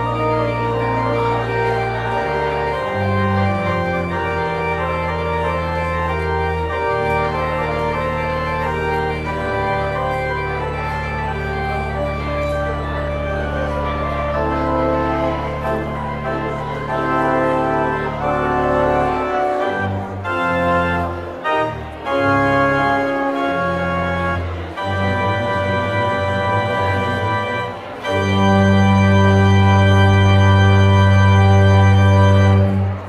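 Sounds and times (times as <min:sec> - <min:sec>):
church organ chords: 0:00.0 - 0:33.0.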